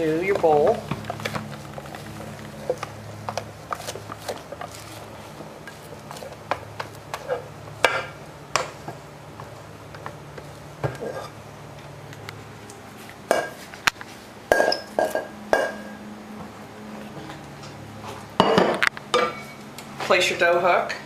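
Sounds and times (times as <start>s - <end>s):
steady low hum: 0.0s - 21.0s
glass bowl clinking against steel bowl: 14.5s - 16.0s, 18.4s - 19.6s.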